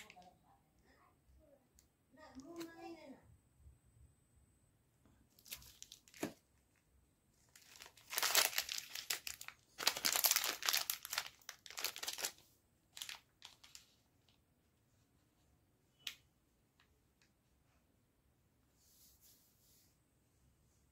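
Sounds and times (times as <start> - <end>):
plastic wrappers crinkling: 0.0 - 0.3, 5.3 - 6.8, 7.4 - 14.0.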